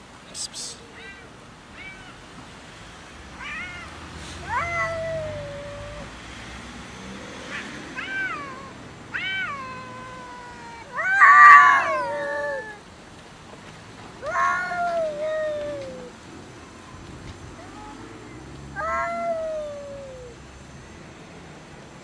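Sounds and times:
cats meowing and yowling: 0.8 - 2.2, 3.4 - 6.1, 7.5 - 12.8, 14.2 - 16.2, 17.6 - 20.4.

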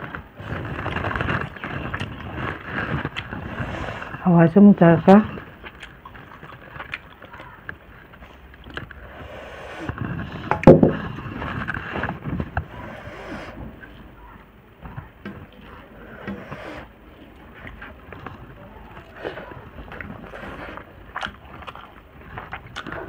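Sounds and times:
fingers scraping steel plate: 16.0 - 16.9.

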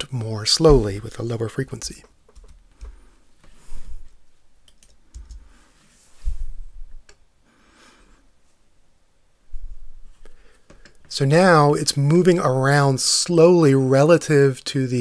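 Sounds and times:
low thumps: 0.6 - 1.2
keyboard and mouse clicks: 2.0 - 3.0, 4.6 - 5.5.

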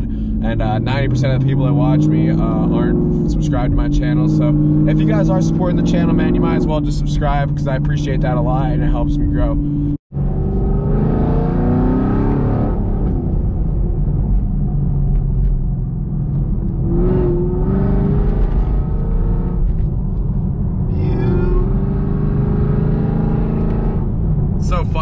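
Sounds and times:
car engine accelerating: 0.0 - 25.0.

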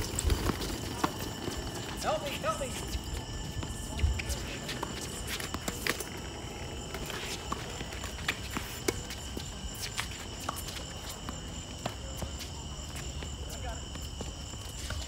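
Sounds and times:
night insects chirring: 0.0 - 15.0
shoes squeaking on court: 0.0 - 15.0
racquets hitting tennis ball: 3.1 - 15.0.

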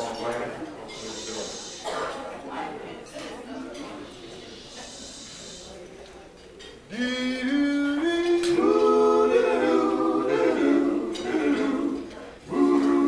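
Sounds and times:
men singing a cappella: 6.9 - 13.0.

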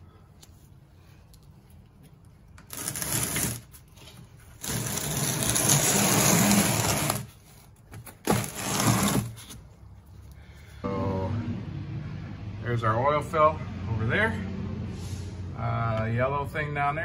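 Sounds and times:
plastic pan scraping on floor: 2.7 - 7.3, 8.2 - 9.6.

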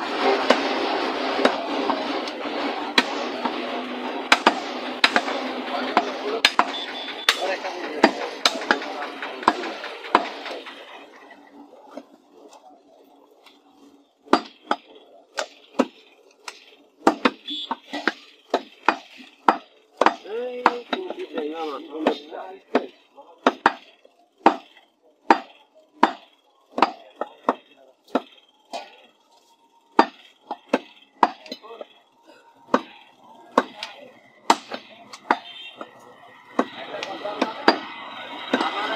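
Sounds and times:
cleaver chopping on wooden block: 4.3 - 5.4, 15.4 - 21.1, 22.0 - 23.8, 24.4 - 24.7, 25.3 - 28.3, 30.0 - 31.6, 32.7 - 32.9, 33.5 - 33.9, 34.5 - 35.9.

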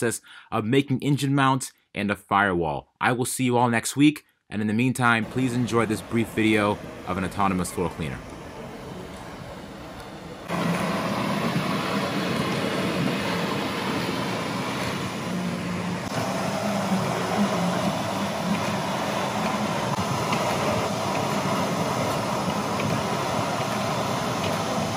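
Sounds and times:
floor scrubber motor drone: 5.2 - 24.9.

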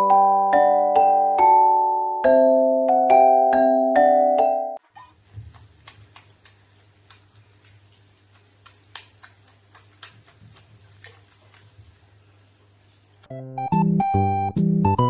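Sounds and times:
water clicks and drips: 4.8 - 12.8.

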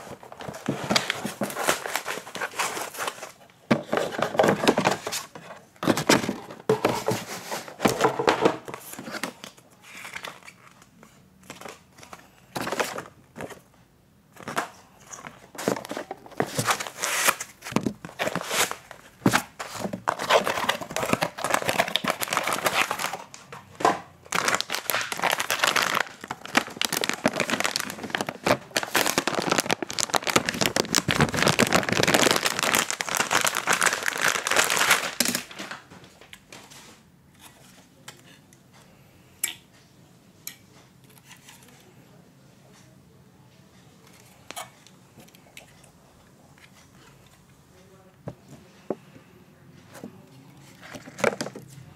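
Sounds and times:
paper and cardboard rustling: 0.0 - 13.7, 14.4 - 37.8, 50.6 - 51.9
plastic bag crinkling: 15.2 - 23.4, 24.3 - 35.8.

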